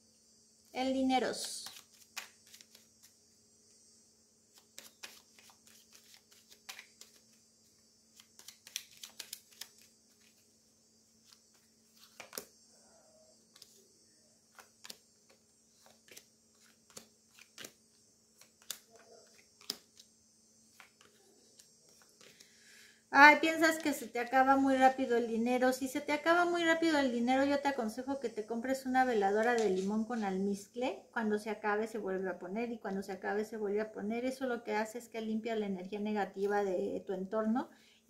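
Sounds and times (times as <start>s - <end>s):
faint steady hum: 0.0s - 38.0s
cards shuffling clicks: 1.4s - 3.2s, 4.5s - 7.4s, 8.1s - 10.4s, 11.2s - 12.5s, 13.5s - 13.8s, 14.5s - 20.1s, 20.7s - 22.5s
cards tapped down: 1.6s - 3.1s, 4.6s - 7.3s, 8.2s - 10.4s, 11.3s - 12.5s, 14.5s - 17.8s, 18.4s - 20.1s, 20.7s - 22.5s.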